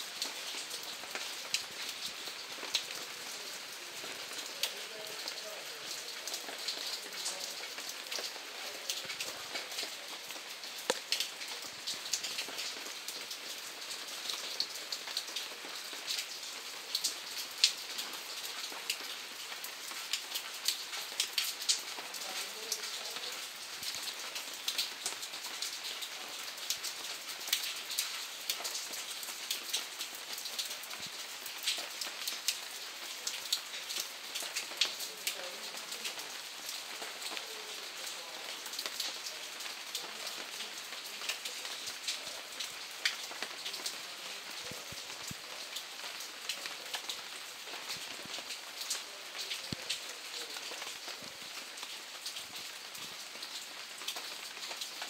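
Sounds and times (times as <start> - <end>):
rain hiss: 0.0 - 55.0
raindrop hits: 0.1 - 14.0.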